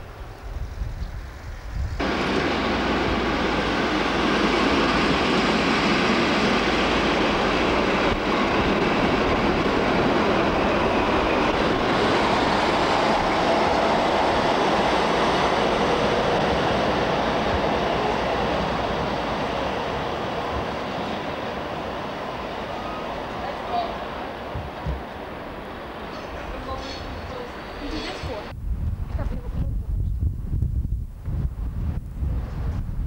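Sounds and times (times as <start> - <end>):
train wheels on rails: 0.0 - 28.6.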